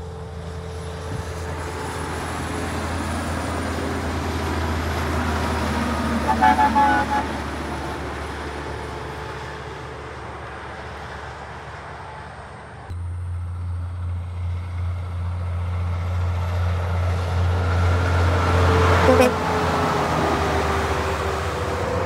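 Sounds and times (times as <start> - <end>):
heavy truck passing: 0.0 - 22.0
truck horn short toots: 6.2 - 7.4, 19.0 - 19.5.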